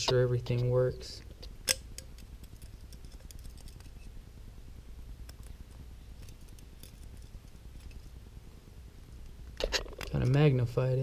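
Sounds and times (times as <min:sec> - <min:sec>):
low steady hum: 0:00.0 - 0:11.0
metallic clicks and scrapes: 0:01.4 - 0:04.1, 0:06.2 - 0:08.2.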